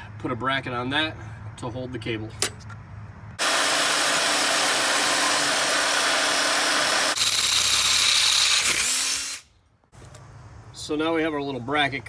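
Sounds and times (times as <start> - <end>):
power drill boring steel: 3.4 - 9.5
steel bar being cut: 3.4 - 9.5.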